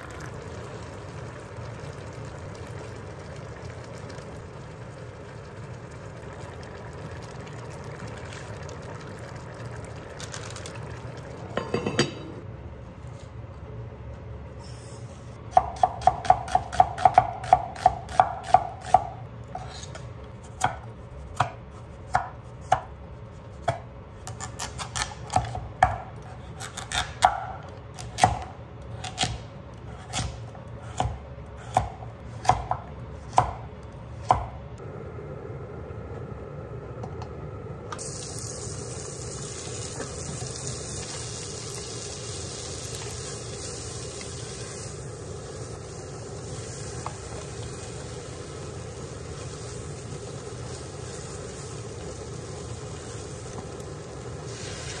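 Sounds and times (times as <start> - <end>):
steady hiss: 38.0 - 55.0.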